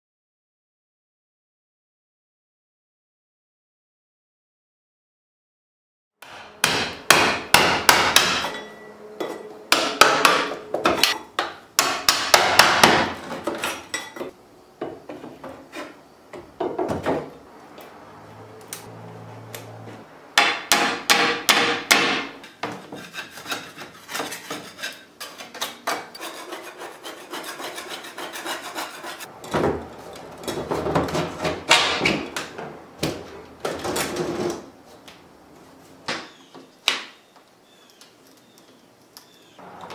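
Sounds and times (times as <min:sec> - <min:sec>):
hammer striking chisel and wood: 0:06.2 - 0:13.8, 0:20.4 - 0:26.3, 0:28.3 - 0:33.2.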